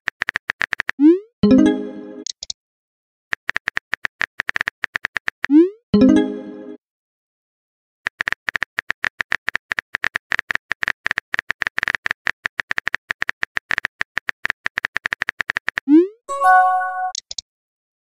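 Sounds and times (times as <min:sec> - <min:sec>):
phone keyboard clicks: 0:03.4 - 0:05.5, 0:08.1 - 0:15.8.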